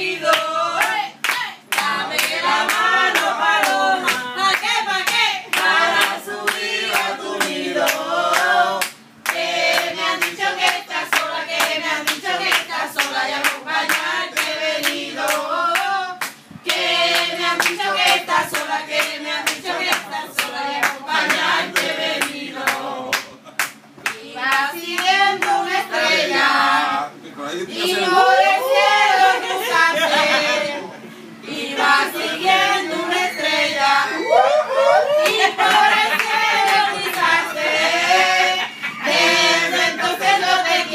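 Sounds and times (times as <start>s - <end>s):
group singing: 0.0s - 27.1s, 27.7s - 40.9s
rhythmic hand clapping: 0.2s - 25.7s, 35.2s - 38.3s.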